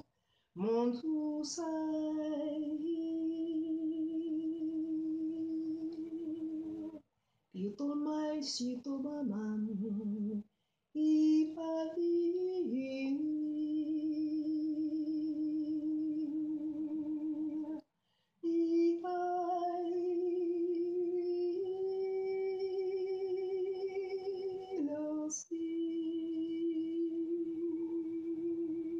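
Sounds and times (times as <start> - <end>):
woman breathing in: 0.1 - 0.6, 18.0 - 18.4.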